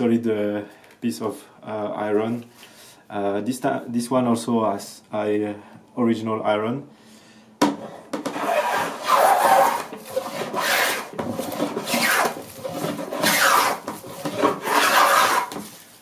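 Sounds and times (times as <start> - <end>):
hand plane shaving wood: 8.3 - 15.7.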